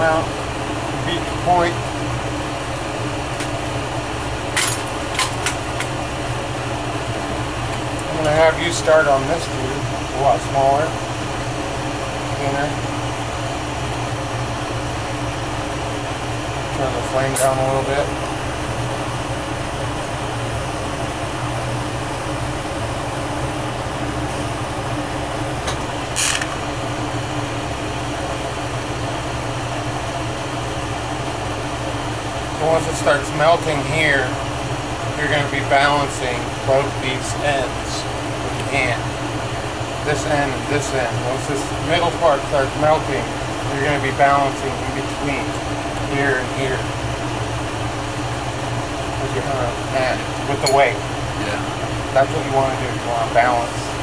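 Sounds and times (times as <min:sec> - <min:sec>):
torch flame hissing: 0:00.0 - 0:54.0.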